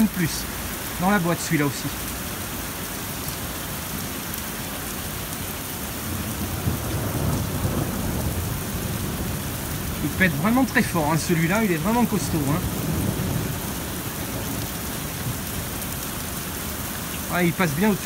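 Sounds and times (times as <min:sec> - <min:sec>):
heavy rain hissing: 0:00.0 - 0:18.0
thunder rolling: 0:06.1 - 0:15.5.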